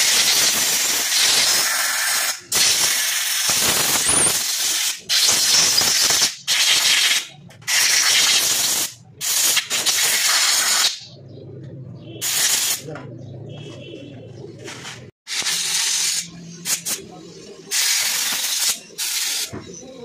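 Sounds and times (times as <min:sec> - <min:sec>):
compressed air hissing: 0:00.0 - 0:11.1, 0:12.2 - 0:12.9, 0:15.3 - 0:17.1, 0:17.7 - 0:19.5.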